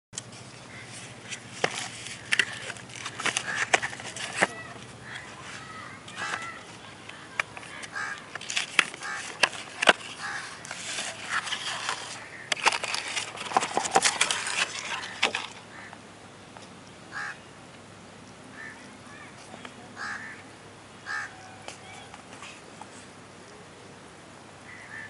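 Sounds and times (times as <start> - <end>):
cardboard box rustling and scraping: 0.3 - 6.9, 7.5 - 15.6
bird calls: 0.5 - 13.9, 18.5 - 23.7, 24.6 - 25.0.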